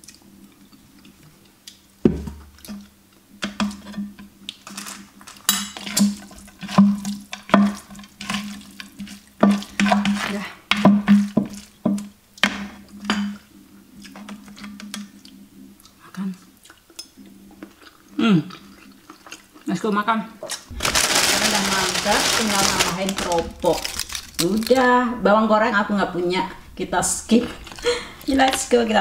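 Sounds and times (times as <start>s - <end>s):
wooden spatula stirring food: 2.1s - 13.4s.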